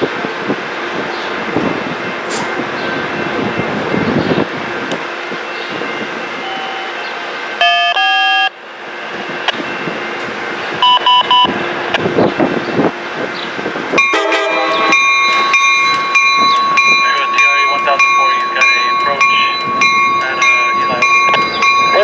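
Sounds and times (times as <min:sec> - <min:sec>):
train rumbling: 0:00.0 - 0:22.0
train horn: 0:14.0 - 0:15.0.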